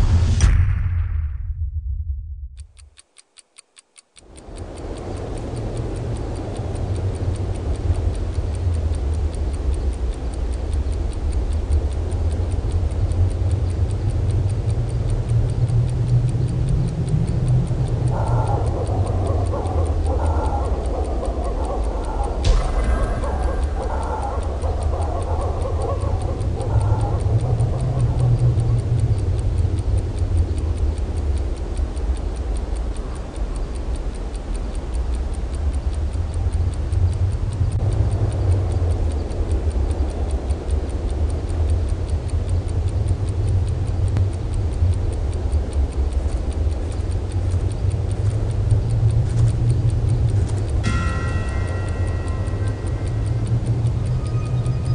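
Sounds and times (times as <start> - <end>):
rapid ticking: 2.6 - 54.9
low drone: 4.4 - 31.0, 47.4 - 54.9.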